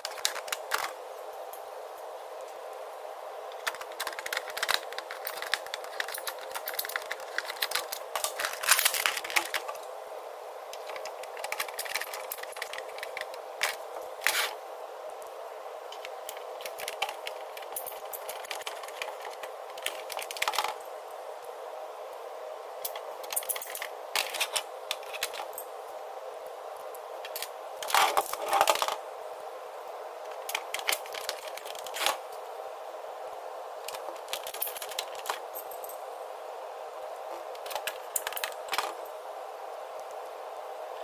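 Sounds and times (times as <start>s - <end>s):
plastic parts clicking and rattling: 0.0s - 1.0s, 3.5s - 9.8s, 10.7s - 14.6s, 15.9s - 20.8s, 22.8s - 25.6s, 27.3s - 29.0s, 30.3s - 32.2s, 33.8s - 35.8s, 37.6s - 39.1s
steady hum: 0.0s - 41.0s.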